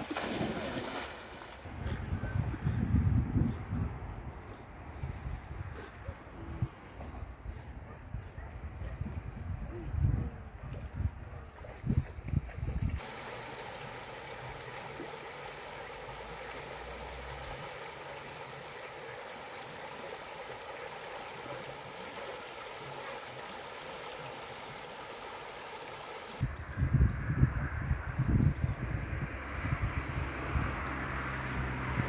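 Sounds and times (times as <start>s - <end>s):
wind buffeting microphone: 1.7s - 13.0s, 26.4s - 32.0s
river water rushing: 13.0s - 26.4s.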